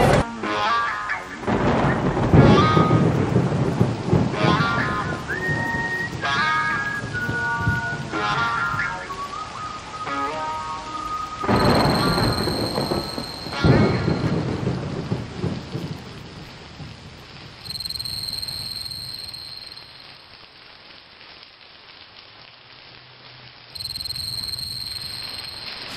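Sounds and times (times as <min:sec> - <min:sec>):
rain-like hiss: 0:00.0 - 0:25.9
thin high tone: 0:11.4 - 0:14.4, 0:17.6 - 0:20.4, 0:23.8 - 0:25.9.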